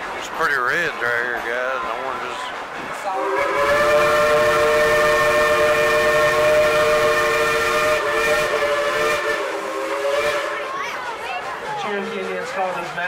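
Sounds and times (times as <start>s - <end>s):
steam whistle chime chord: 3.2s - 10.6s.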